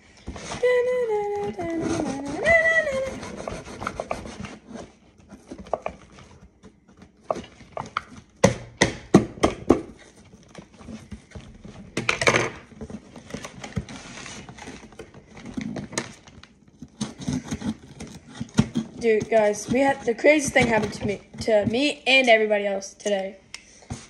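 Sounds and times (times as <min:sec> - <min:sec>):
scissors cutting packaging: 0:00.7 - 0:08.4, 0:13.0 - 0:22.4.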